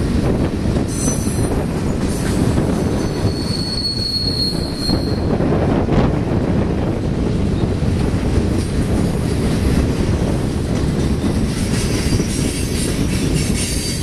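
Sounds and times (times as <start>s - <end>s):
steel wheels rumbling on rails: 0.0s - 14.0s.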